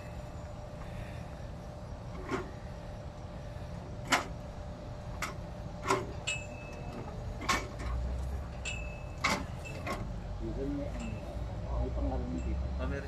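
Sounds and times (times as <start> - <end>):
metallic knocks and clinks: 8.6 - 10.1.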